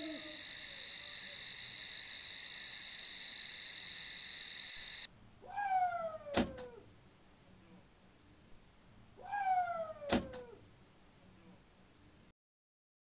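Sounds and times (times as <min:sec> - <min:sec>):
high-pitched pulsing insect trill: 0:00.0 - 0:05.1.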